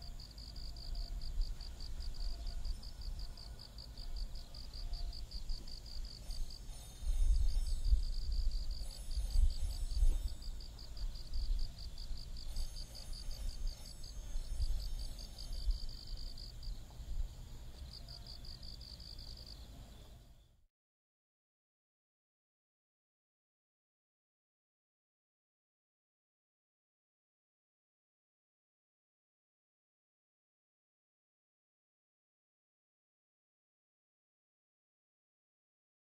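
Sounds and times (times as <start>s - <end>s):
insects chirping: 0.0s - 20.6s.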